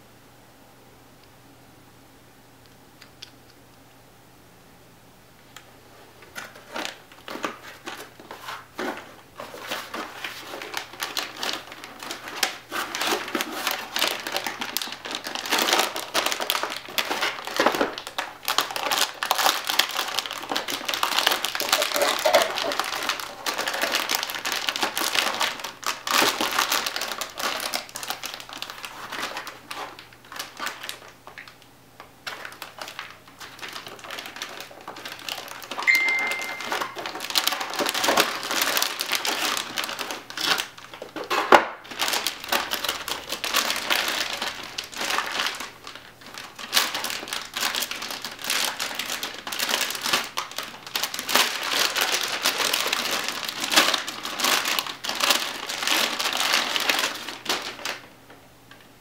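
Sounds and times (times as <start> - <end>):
plastic bag crinkling: 6.1 - 58.4
short high tone: 35.9 - 37.0.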